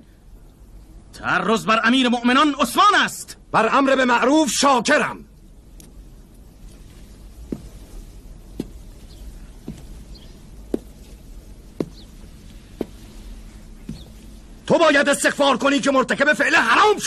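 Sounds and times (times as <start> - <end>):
faint low hum: 0.0 - 17.0
soft thuds: 6.6 - 14.6.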